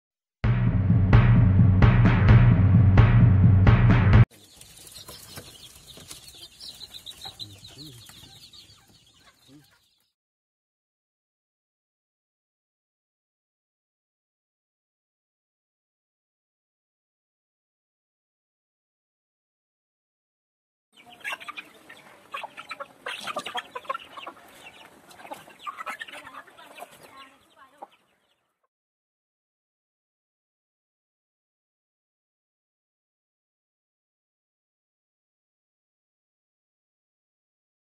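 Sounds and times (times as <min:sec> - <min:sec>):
drum-heavy intro music: 0:00.4 - 0:04.3
chicken clucking: 0:04.3 - 0:10.1, 0:21.0 - 0:28.7
chicks peeping: 0:04.3 - 0:10.1, 0:21.0 - 0:28.7.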